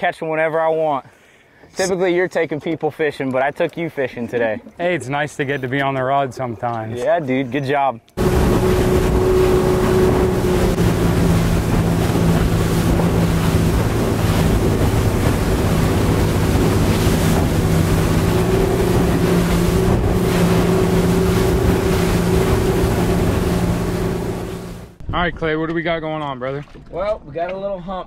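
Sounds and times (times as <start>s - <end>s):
boat engine drone: 8.2s - 25.0s
rushing water: 8.2s - 25.0s
wind buffeting microphone: 8.2s - 25.4s.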